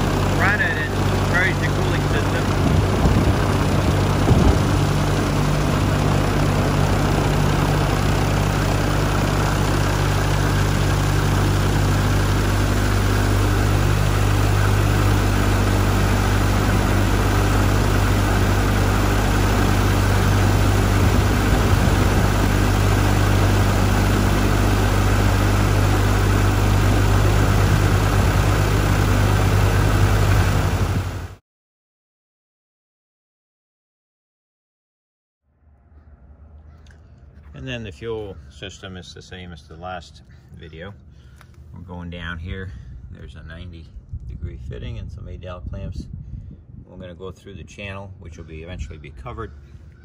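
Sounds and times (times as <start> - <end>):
aircraft engine idling: 0.0 - 31.4.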